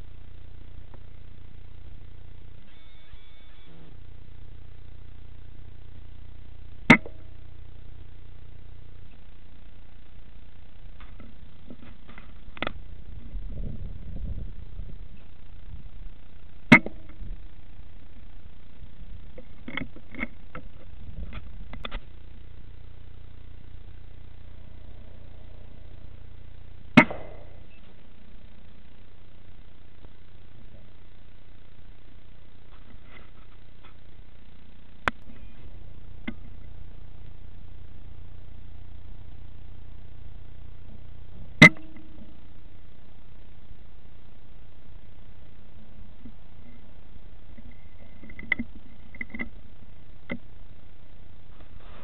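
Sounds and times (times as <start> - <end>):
steady low rumble: 0.0 - 2.7, 3.4 - 52.0
steady low hum: 0.0 - 52.0
quiet clicks: 19.3 - 22.1, 47.5 - 49.6, 50.2 - 50.5
air rifle shot: 27.0 - 27.7.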